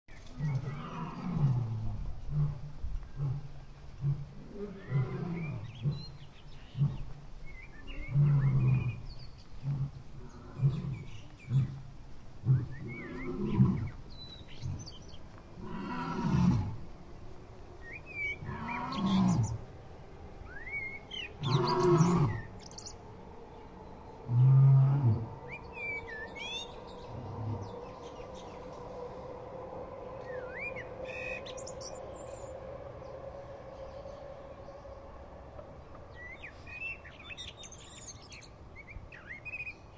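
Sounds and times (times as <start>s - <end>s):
birds chirping: 0.1s - 1.7s, 3.0s - 16.6s, 17.8s - 19.7s, 20.4s - 29.3s, 29.9s - 35.2s, 35.9s - 39.9s
tiger growling and roaring: 0.2s - 16.9s, 18.2s - 19.7s, 21.3s - 22.8s, 24.2s - 29.0s.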